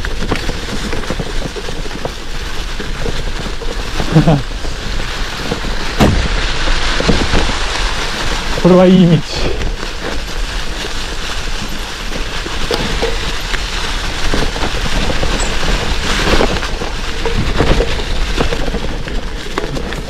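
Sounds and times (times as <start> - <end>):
bike rattling over bumps: 0.0 - 20.0
bike tyres crunching on gravel: 0.0 - 20.0.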